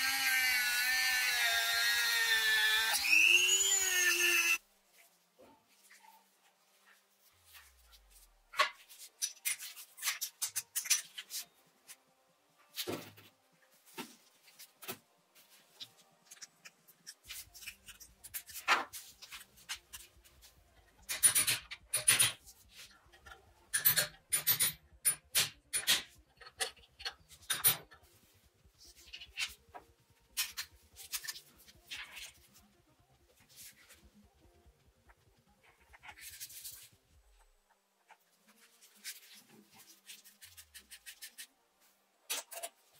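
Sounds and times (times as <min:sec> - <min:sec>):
small metal parts clicking and scraping: 0:09.0 - 0:11.5, 0:20.9 - 0:28.1.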